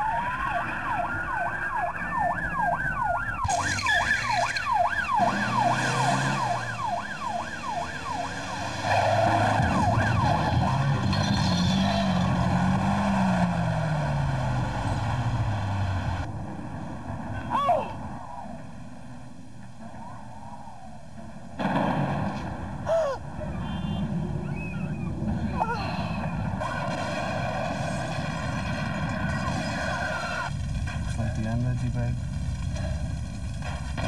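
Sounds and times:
emergency siren wailing and yelping: 0.0s - 12.4s, 22.9s - 26.4s
road noise: 0.0s - 34.0s
vehicle engine: 3.4s - 17.5s.

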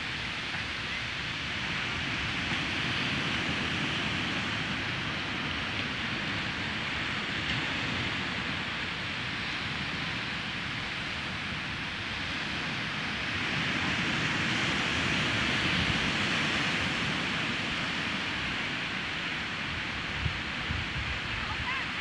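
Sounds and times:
waves washing up a beach: 0.0s - 22.0s.

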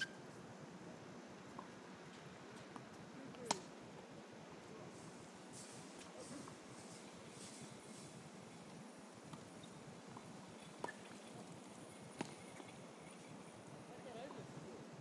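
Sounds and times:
faint background noise: 0.0s - 15.0s
tennis ball impacts: 3.4s - 3.7s, 12.2s - 12.4s.

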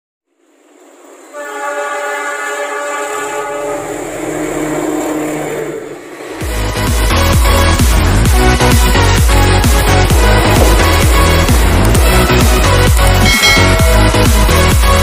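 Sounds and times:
locomotive engine rumble: 0.3s - 15.0s
locomotive horn blast: 1.3s - 6.6s.

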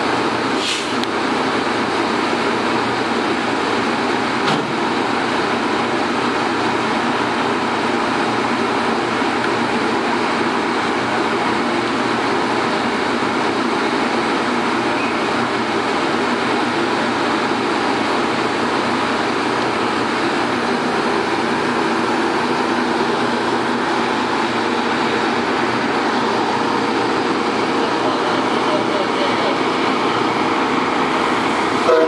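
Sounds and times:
diesel train running: 0.0s - 32.0s.

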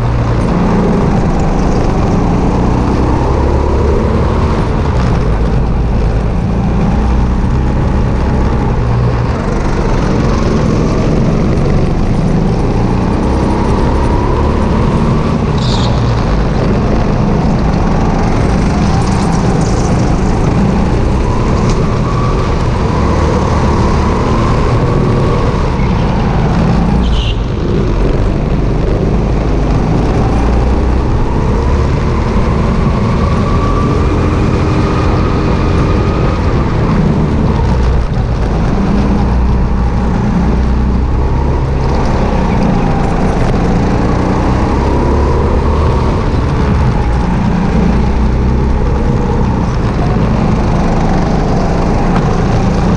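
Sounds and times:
go-kart engine running hard: 0.0s - 52.9s.

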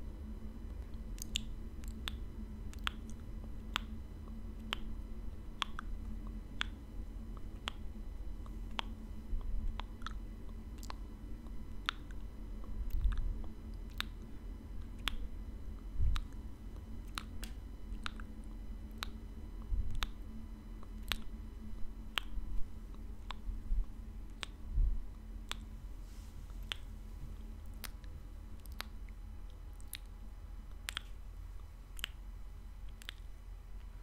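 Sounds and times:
wet mouth clicks: 1.2s - 3.9s, 10.8s - 12.2s, 12.9s - 13.3s, 13.9s - 14.2s, 15.0s - 15.2s, 17.0s - 18.3s, 19.0s - 19.2s, 19.9s - 20.2s, 20.9s - 21.3s, 22.1s - 23.4s, 24.3s - 24.6s, 25.5s - 25.7s, 26.6s - 26.9s, 27.6s - 29.0s, 29.8s - 30.1s, 30.7s - 31.2s, 31.9s - 32.2s, 32.8s - 33.3s
soft low thumps: 21.8s - 28.3s.

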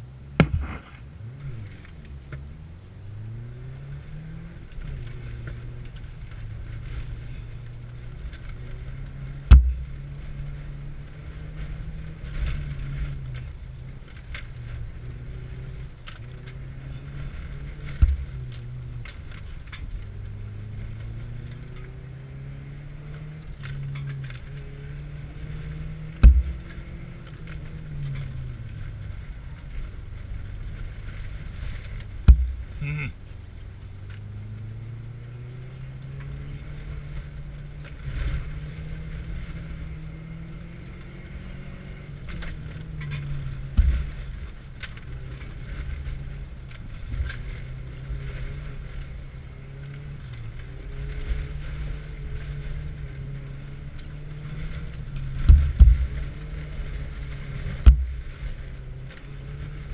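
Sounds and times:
car engine revving: 0.0s - 59.9s
gravel ticking against car: 0.0s - 59.9s
heavy thumps: 0.3s - 1.1s, 9.5s - 10.0s, 26.2s - 26.7s, 32.2s - 32.8s.

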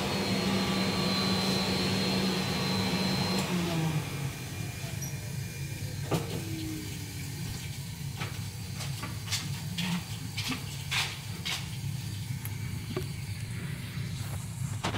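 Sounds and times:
low steady hum: 4.0s - 14.9s.

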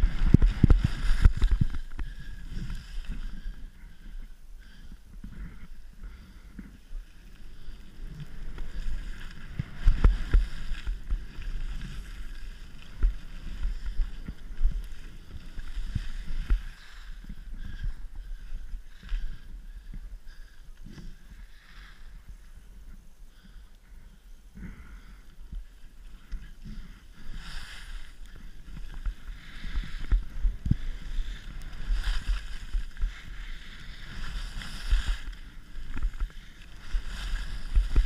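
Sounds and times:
skis scraping over snow: 0.0s - 3.8s, 5.7s - 19.3s, 25.6s - 38.0s
wind rumble on microphone: 0.0s - 38.0s.

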